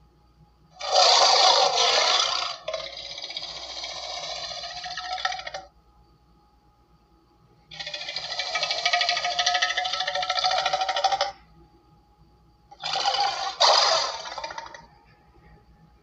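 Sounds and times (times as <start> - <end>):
big cat growling through tv speaker: 0.8 - 5.7, 12.8 - 14.9.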